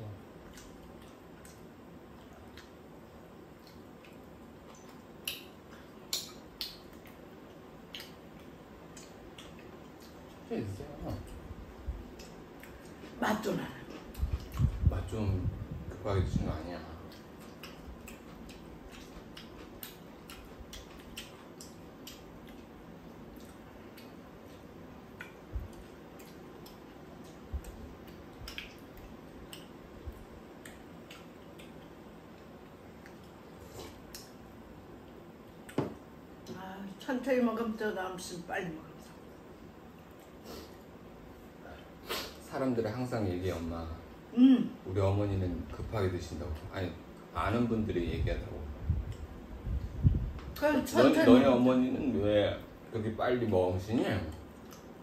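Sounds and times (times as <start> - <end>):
low background noise: 0.0 - 55.0
chewing: 0.4 - 2.9, 3.5 - 10.5, 12.1 - 13.2, 13.8 - 14.9, 17.0 - 34.4, 54.3 - 55.0.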